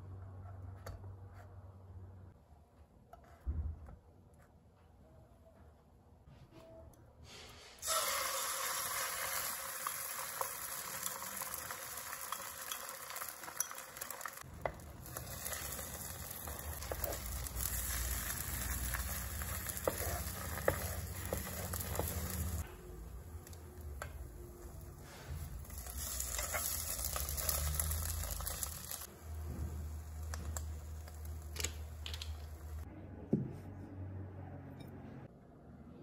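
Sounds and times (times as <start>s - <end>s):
egg sizzling in hot oil: 7.8s - 22.7s, 23.4s - 29.1s
wooden spatula scraping wok: 12.4s - 22.6s, 24.8s - 30.0s.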